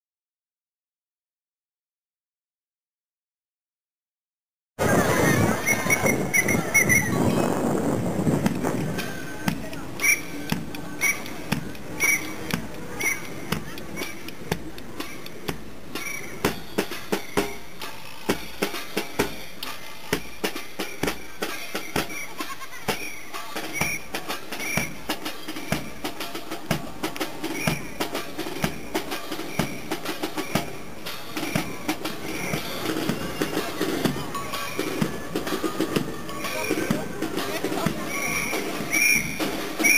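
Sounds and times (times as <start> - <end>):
geese honking: 4.8 - 7.2, 10.0 - 14.2, 15.9 - 18.3
drum beating march rhythm: 4.8 - 39.9.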